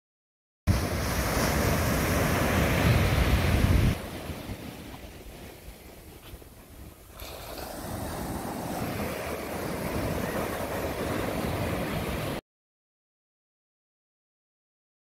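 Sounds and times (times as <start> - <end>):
ocean surf: 0.7 - 12.4
wind buffeting microphone: 0.8 - 12.4.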